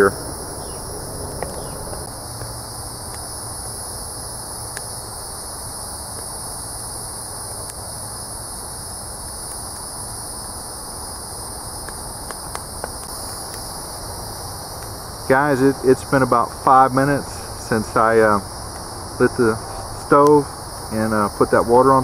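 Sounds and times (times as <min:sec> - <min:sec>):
insects chirring: 0:00.0 - 0:22.0
fire pops: 0:11.8 - 0:13.8, 0:18.6 - 0:20.4.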